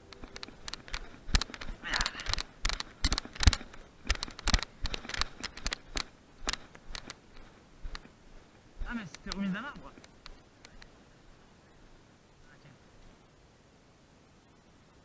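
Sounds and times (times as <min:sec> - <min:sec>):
brushing through branches: 0:00.0 - 0:11.0
footsteps crunching on twigs: 0:00.0 - 0:11.0.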